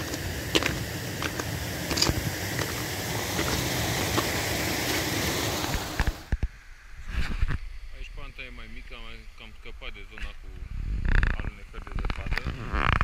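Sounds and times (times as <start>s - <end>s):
footsteps in snow: 0.0s - 6.2s
steady rushing hiss: 0.0s - 13.0s.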